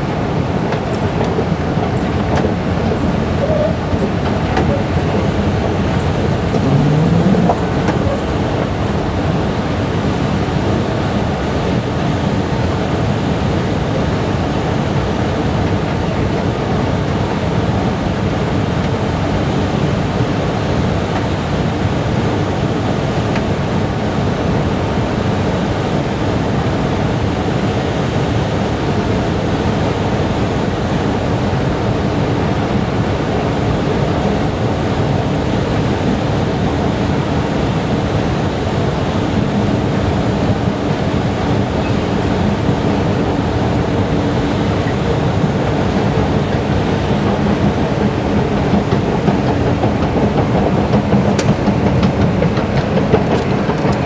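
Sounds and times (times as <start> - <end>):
escalator rumbling: 0.0 - 11.2, 33.3 - 54.0.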